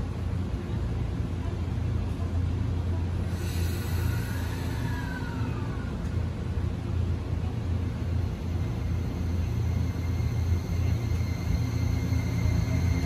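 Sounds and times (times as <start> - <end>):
train low rumble: 0.0 - 13.0
faint high whine: 2.9 - 13.0.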